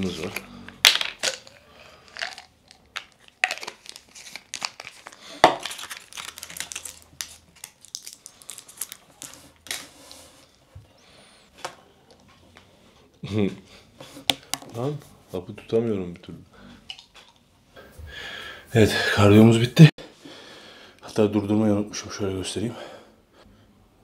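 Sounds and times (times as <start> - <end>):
plastic packaging crinkling: 0.0 - 10.6.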